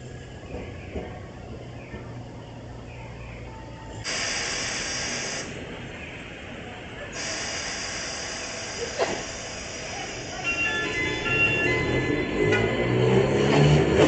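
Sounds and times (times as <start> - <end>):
tram horn hissing blasts: 4.1 - 5.6, 7.1 - 12.5.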